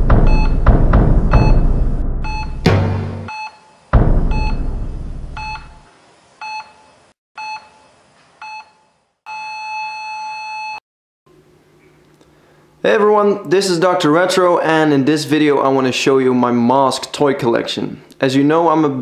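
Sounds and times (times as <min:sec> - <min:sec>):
deep hits: 0:00.0 - 0:03.3, 0:04.0 - 0:05.8
heart monitor beeps: 0:00.3 - 0:00.6, 0:01.4 - 0:01.6, 0:02.2 - 0:02.6, 0:03.3 - 0:04.6, 0:05.4 - 0:05.8, 0:06.4 - 0:07.8, 0:08.4 - 0:10.8
flatline tone: 0:01.4 - 0:02.7, 0:04.3 - 0:05.8.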